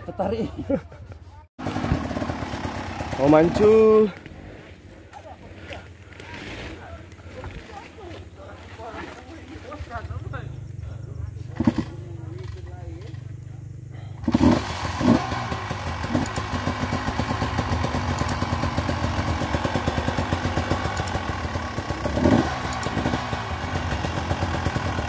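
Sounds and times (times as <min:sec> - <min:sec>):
dirt bike engine revving: 0:01.6 - 0:04.8, 0:10.4 - 0:25.0.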